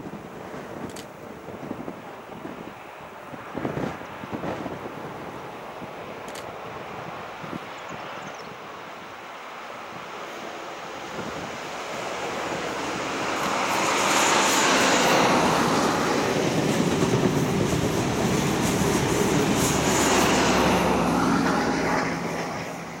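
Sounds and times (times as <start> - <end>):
diesel train engine: 9.3 - 23.0
train wheels on rails: 9.9 - 23.0.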